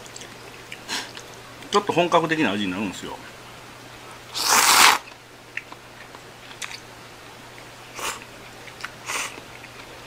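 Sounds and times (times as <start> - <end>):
soft chewing: 0.0 - 1.7, 7.5 - 10.0
slurping noodles: 4.4 - 5.0.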